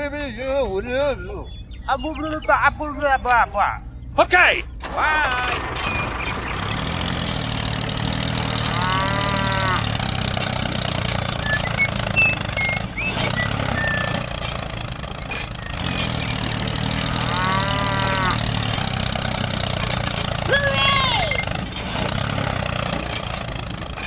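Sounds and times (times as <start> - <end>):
low engine hum: 0.0 - 24.0
brief arching calls: 1.4 - 4.1
faint short chirps: 1.5 - 4.1.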